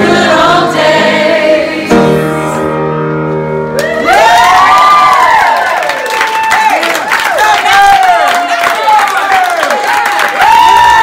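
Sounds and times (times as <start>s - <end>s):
choir singing pop song: 0.0s - 2.7s
people clapping: 3.8s - 11.0s
whoops and cheers: 3.8s - 11.0s.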